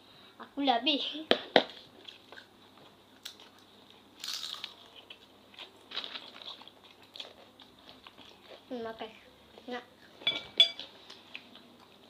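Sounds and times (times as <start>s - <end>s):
crackers being crunched: 4.2s - 8.4s.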